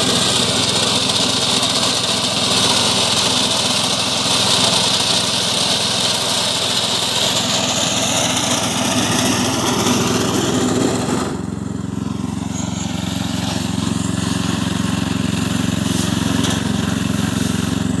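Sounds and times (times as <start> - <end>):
power tiller engine running: 0.0 - 18.0
hissy upper layer: 12.1 - 17.9.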